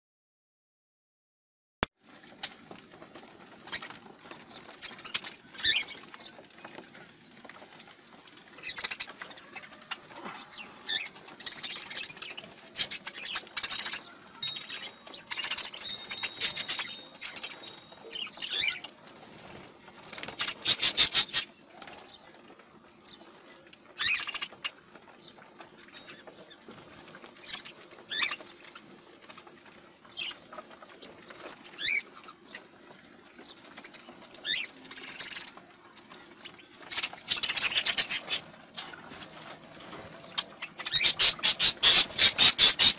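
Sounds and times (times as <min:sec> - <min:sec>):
budgerigars chirping: 0:10.4 - 0:18.9, 0:20.2 - 0:21.5, 0:36.9 - 0:39.0, 0:40.2 - 0:42.9.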